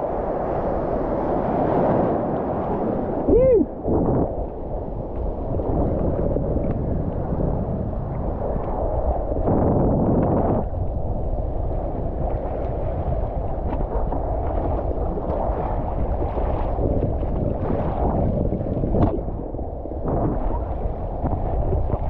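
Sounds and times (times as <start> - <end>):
wind buffeting microphone: 0.0 - 22.0
rushing splashing water: 11.4 - 22.0.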